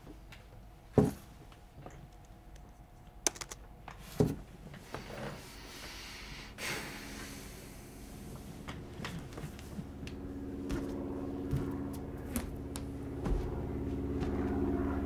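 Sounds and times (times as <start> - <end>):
laptop keyboard clicks: 2.1 - 3.7.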